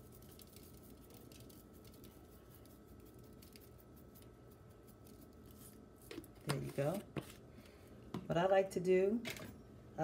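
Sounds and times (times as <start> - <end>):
seasoning pattering from shaker: 0.0 - 6.3
faint steady hum: 0.0 - 10.0.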